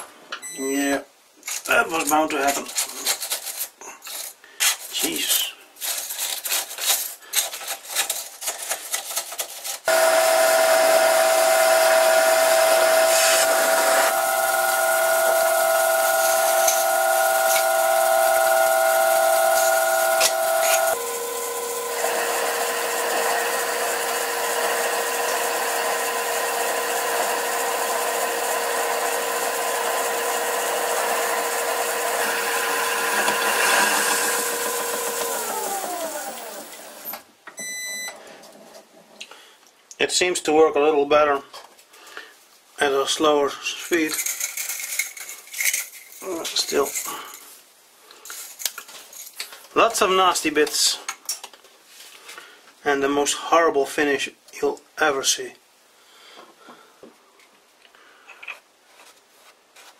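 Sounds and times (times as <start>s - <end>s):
rasp of lathe cutting: 9.9s - 21.0s, 21.9s - 36.8s
metal lathe whining: 9.9s - 37.1s
metal swarf scraping and clinking: 43.9s - 47.6s.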